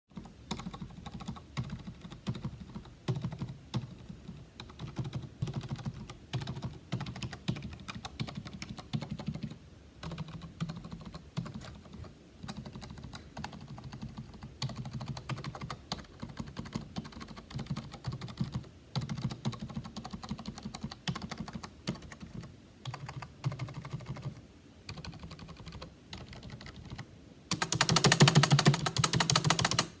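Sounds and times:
typing on computer keyboard: 0.1s - 30.0s.

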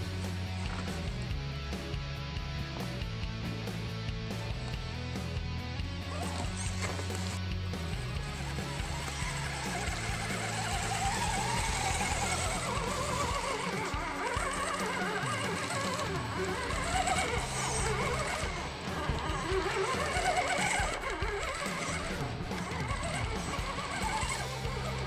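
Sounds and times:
soundtrack music with low notes: 0.0s - 25.0s.

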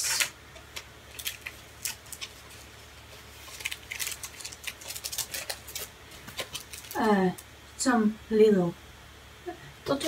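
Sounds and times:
cellophane crinkling: 0.0s - 7.5s.

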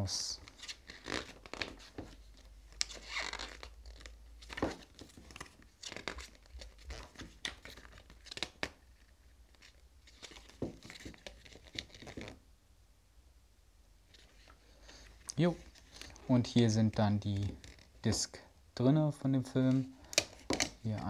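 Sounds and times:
pages rustling and turning: 0.4s - 12.4s, 14.1s - 18.4s.

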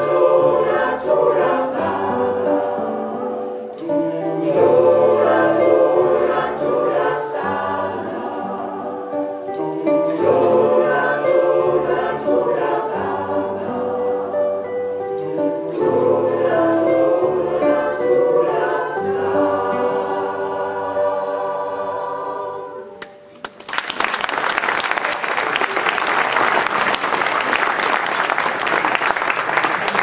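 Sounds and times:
choir singing held chords: 0.0s - 23.2s
audience applause: 23.4s - 30.0s.

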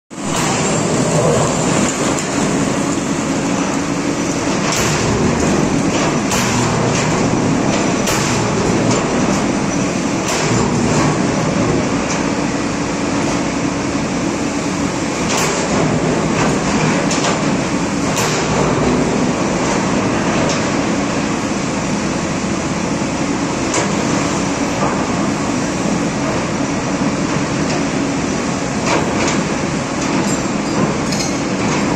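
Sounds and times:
excavator diesel engine under load: 0.2s - 12.7s.

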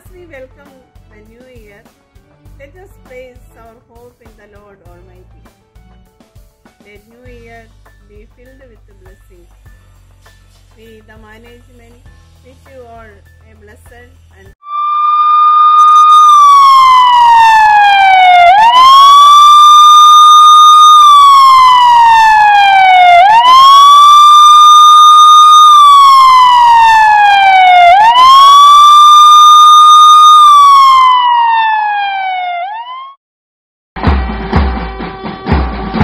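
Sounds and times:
music with drums: 1.0s - 10.9s, 34.0s - 36.0s
police siren wailing: 14.6s - 33.2s.

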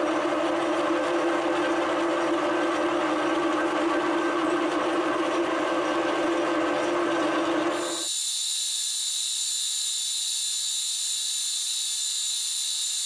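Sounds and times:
milling machine hum: 7.7s - 13.0s.

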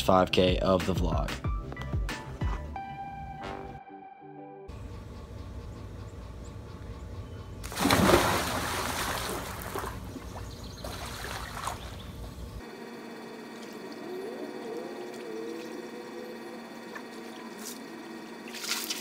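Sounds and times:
person splashing into pool: 7.6s - 12.0s, 18.5s - 19.0s
water sloshing and lapping: 7.6s - 12.6s, 18.4s - 19.0s.

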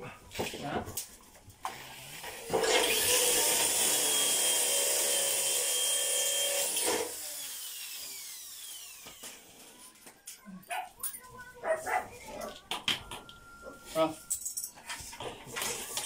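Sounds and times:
electric power tool running: 1.6s - 9.8s.

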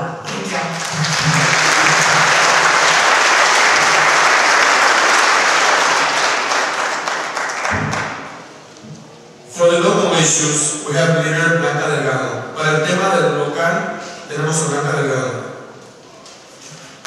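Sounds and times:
audience applauding: 0.4s - 8.6s.

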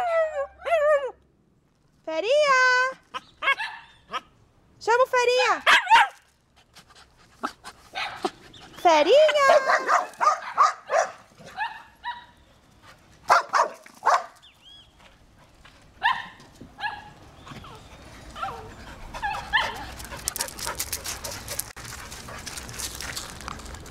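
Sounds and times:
dog yelping: 3.1s - 4.3s, 9.2s - 12.4s, 16.0s - 20.0s
dogs barking: 9.2s - 12.4s, 13.3s - 14.4s, 16.0s - 17.2s.

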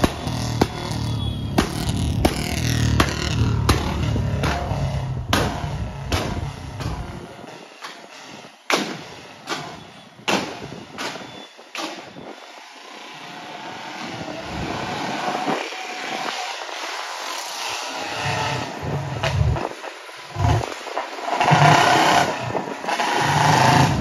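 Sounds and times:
motorcycle backfire pops: 0.0s - 7.2s, 8.7s - 12.1s
motorcycle engine running: 0.0s - 7.4s, 23.1s - 24.0s.

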